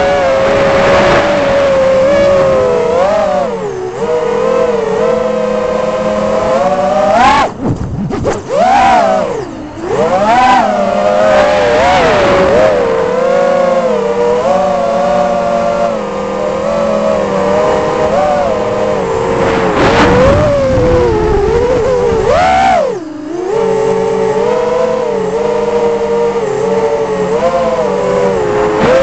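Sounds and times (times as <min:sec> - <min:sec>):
wind noise rushes: 0:00.0 - 0:04.8, 0:05.4 - 0:14.3, 0:15.3 - 0:23.0, 0:27.3 - 0:29.0
quadcopter motors whining: 0:00.0 - 0:29.0.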